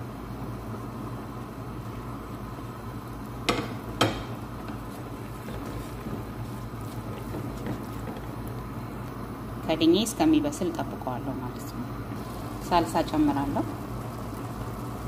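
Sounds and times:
meat sizzling in a pot: 12.0s - 15.0s.

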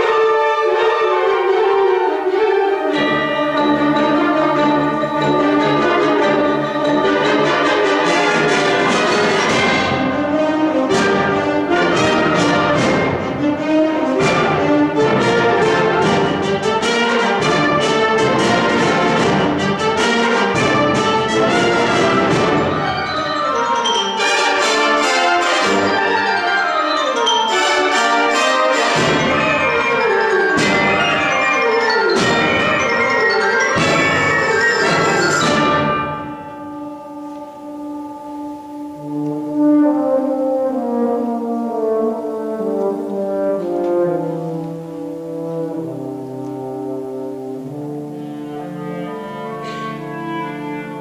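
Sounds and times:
wind ensemble playing: 0.0s - 51.0s
percussion strikes: 2.3s - 41.3s.

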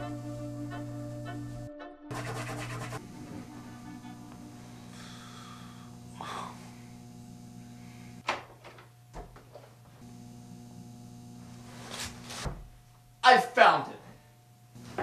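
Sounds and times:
low electrical hum: 0.0s - 15.0s
door thump opening: 12.4s - 12.8s.

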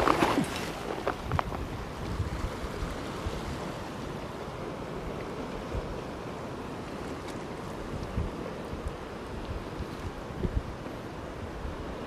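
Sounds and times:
wind buffeting microphone: 0.0s - 4.3s, 7.6s - 12.0s
small waves washing against rocks: 0.0s - 10.8s.

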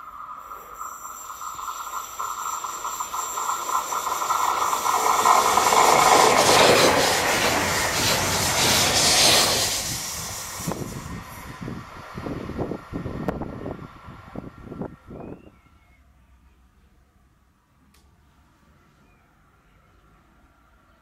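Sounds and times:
electric train passing: 0.0s - 15.4s
steady train whine: 0.0s - 16.6s.

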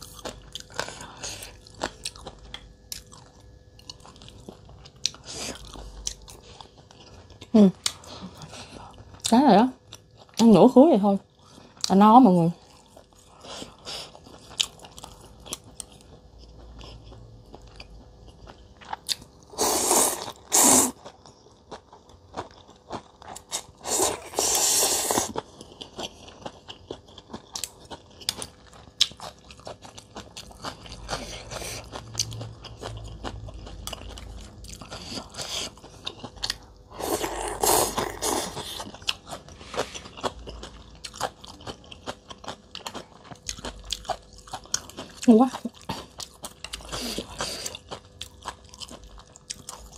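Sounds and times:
person chewing: 0.0s - 9.3s, 12.5s - 49.9s
slurping noodles: 19.5s - 21.0s, 23.5s - 25.4s, 36.9s - 38.8s.

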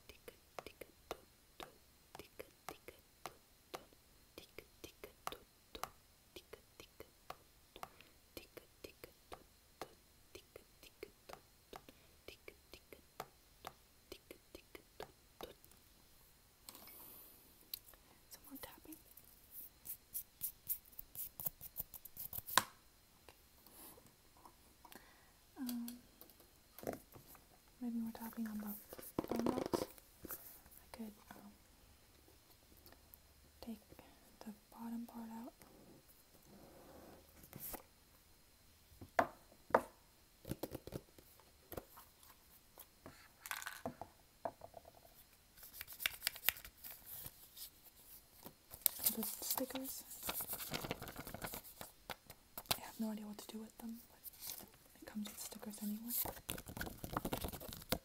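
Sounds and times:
fingers clicking and rustling on phone: 45.6s - 47.4s, 55.8s - 58.0s
paper rustling: 48.7s - 51.9s.

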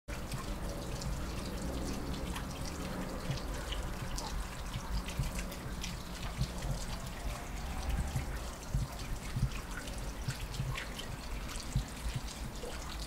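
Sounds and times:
water trickling and dripping: 0.1s - 13.0s.

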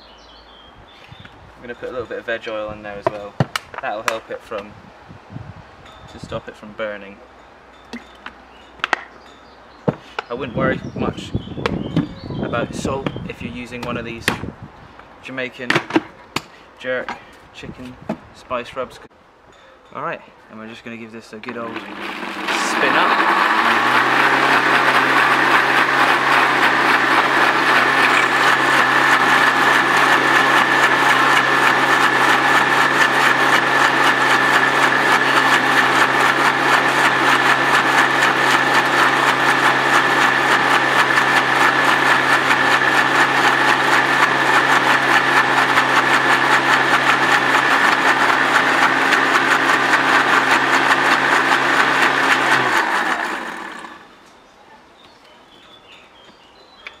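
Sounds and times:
blender motor whining: 21.5s - 54.2s.

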